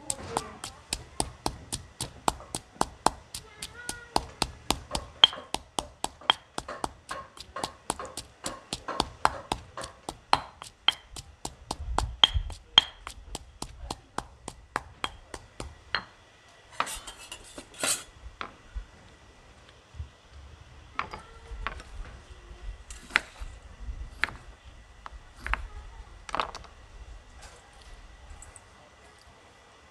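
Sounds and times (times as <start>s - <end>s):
stone pestle pounding in mortar: 0.0s - 16.1s
metal spoon scraping steel bowl: 16.8s - 18.1s.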